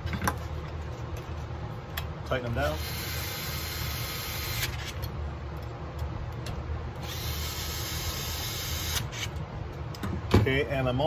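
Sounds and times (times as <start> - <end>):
cordless drill whirring: 7.0 - 9.3.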